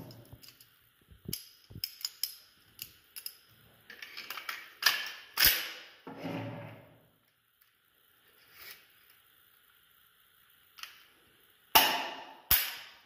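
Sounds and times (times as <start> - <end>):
metal rifle parts clicking: 1.3 - 5.7.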